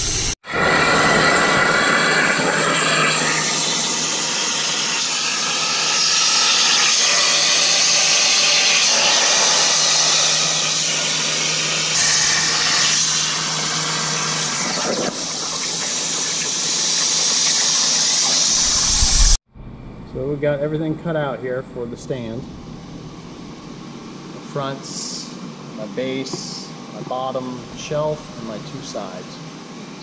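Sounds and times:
plasma arc hissing: 0:00.0 - 0:19.4
low machine hum: 0:18.7 - 0:30.0.

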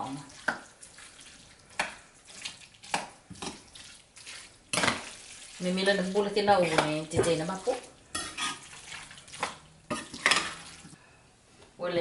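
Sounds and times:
person talking: 0:05.6 - 0:07.9
metal spoon scraping ceramic bowl: 0:08.1 - 0:08.7.

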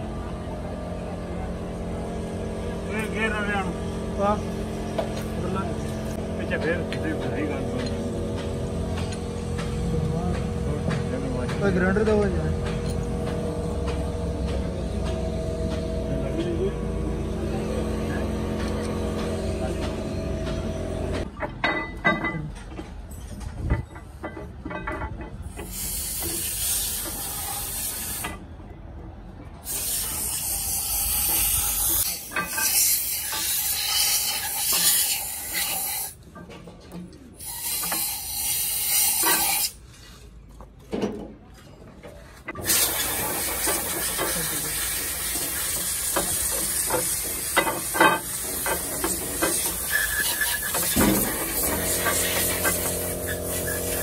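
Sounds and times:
high-pressure jet hissing: 0:25.6 - 0:28.3, 0:29.6 - 0:36.2, 0:37.4 - 0:39.8, 0:42.6 - 0:54.0.

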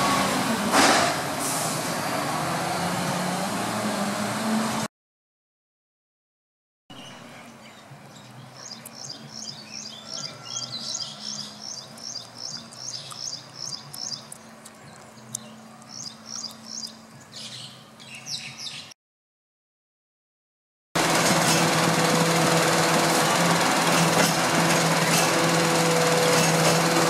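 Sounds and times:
diesel engine hum: 0:00.0 - 0:04.9, 0:07.0 - 0:18.1, 0:21.0 - 0:27.0
small bird chirping: 0:07.0 - 0:18.9.

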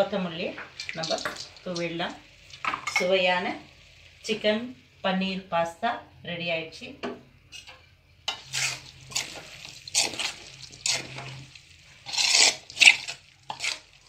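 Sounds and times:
spoon scraping metal pot: 0:07.5 - 0:13.9.

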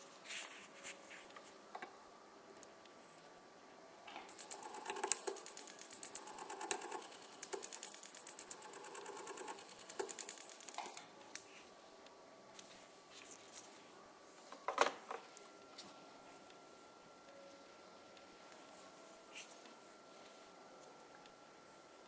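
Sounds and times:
dental handpiece chatter and whine: 0:04.3 - 0:11.0.

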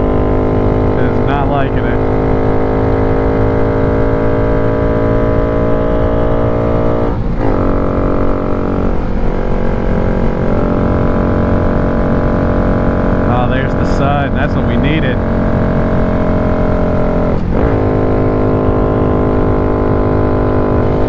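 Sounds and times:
rider speaking: 0:00.9 - 0:02.1, 0:13.2 - 0:15.2.

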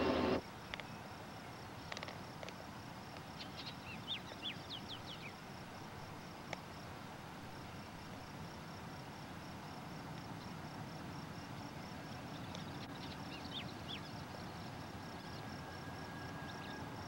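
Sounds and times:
faint clicks: 0:01.9 - 0:03.3
bird chirping: 0:12.3 - 0:15.5.

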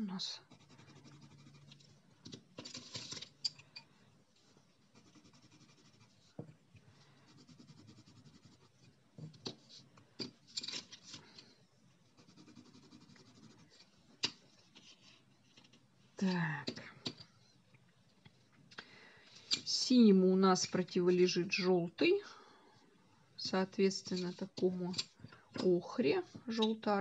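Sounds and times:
pencil scratching on paper: 0:00.4 - 0:02.0, 0:04.8 - 0:06.4, 0:07.2 - 0:09.8, 0:12.0 - 0:14.0.

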